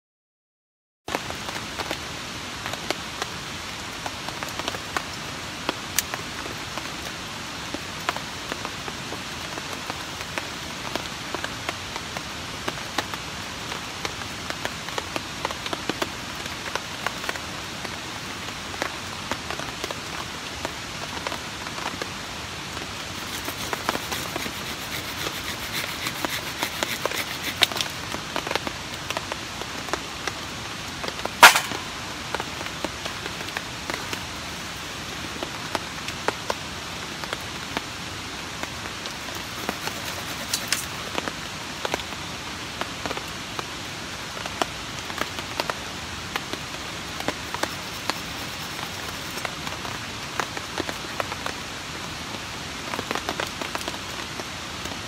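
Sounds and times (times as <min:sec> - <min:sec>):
rain on a tarp: 0:01.1 - 0:55.0
loud sharp crack: 0:31.4 - 0:32.4.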